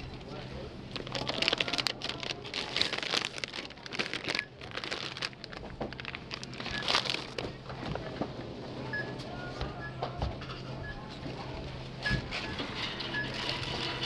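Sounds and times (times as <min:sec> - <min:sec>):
plastic snack bags crinkling: 0:00.9 - 0:07.6.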